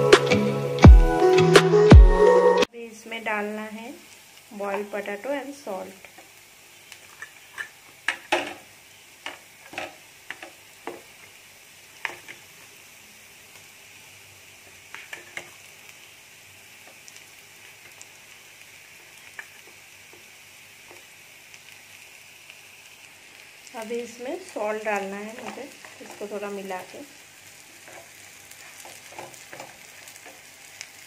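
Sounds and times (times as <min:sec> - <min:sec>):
oil sizzling in a pan: 0:02.7 - 0:31.0
spoon stirring in a pan: 0:25.2 - 0:26.5, 0:27.7 - 0:30.5.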